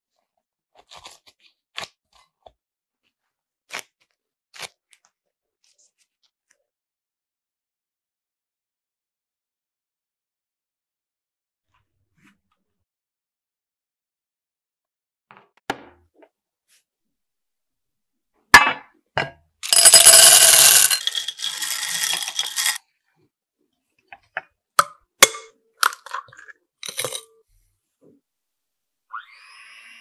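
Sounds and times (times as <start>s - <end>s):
chocolate chips rattling in glass bowl: 19.6s - 22.8s, 26.8s - 27.2s.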